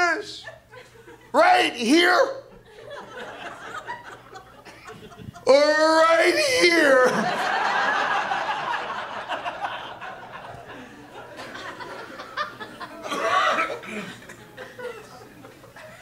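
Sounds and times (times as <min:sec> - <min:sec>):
audience laughing: 0:02.6 - 0:05.5, 0:06.3 - 0:16.0.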